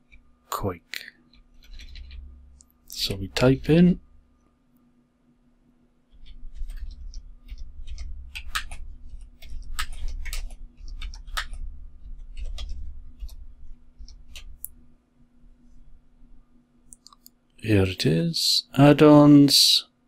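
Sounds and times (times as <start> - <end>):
keyboard typing: 1.4 - 2.3, 6.1 - 14.7.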